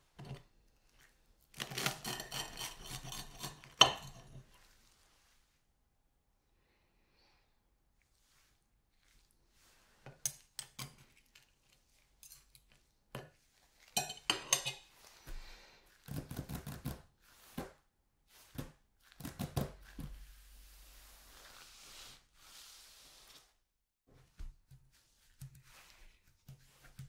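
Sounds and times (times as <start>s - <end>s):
cutlery scraping on ceramic plate: 0.2s - 0.4s, 1.6s - 4.5s, 13.2s - 14.9s
cutlery set down on plate: 14.0s - 14.8s.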